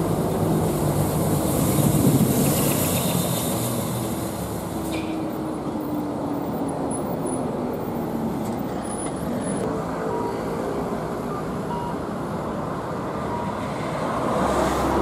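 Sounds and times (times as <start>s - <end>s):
dump trucks rumbling past: 0.0s - 15.0s.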